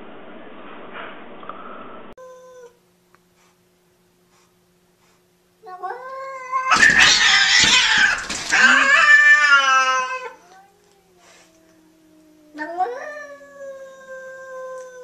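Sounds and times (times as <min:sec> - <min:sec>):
cats caterwauling: 0:05.6 - 0:15.0.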